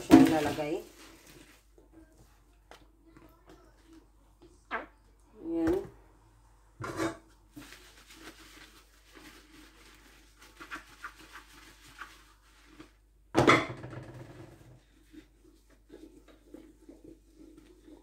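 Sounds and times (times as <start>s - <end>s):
dishes clattering: 6.8s - 7.3s
sponge scrubbing glass jar: 7.6s - 13.0s.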